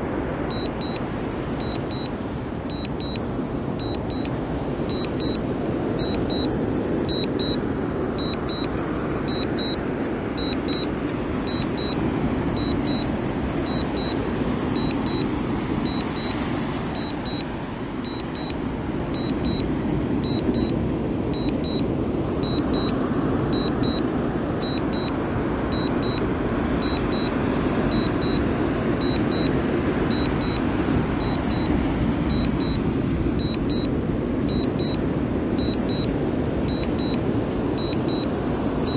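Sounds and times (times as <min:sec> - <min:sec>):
steady rushing noise: 0:00.0 - 0:38.9
controller double beeps: 0:00.5 - 0:01.0, 0:01.6 - 0:02.1, 0:02.7 - 0:03.2, 0:03.8 - 0:04.3, 0:04.9 - 0:05.4, 0:06.0 - 0:06.5, 0:07.1 - 0:07.6, 0:08.2 - 0:09.8, 0:10.4 - 0:12.0, 0:12.6 - 0:19.6, 0:20.2 - 0:20.7, 0:21.3 - 0:21.8, 0:22.4 - 0:25.1, 0:25.7 - 0:26.2, 0:26.8 - 0:29.5, 0:30.1 - 0:30.6, 0:31.2 - 0:33.9, 0:34.5 - 0:35.0, 0:35.6 - 0:36.1, 0:36.7 - 0:37.2, 0:37.8 - 0:38.9.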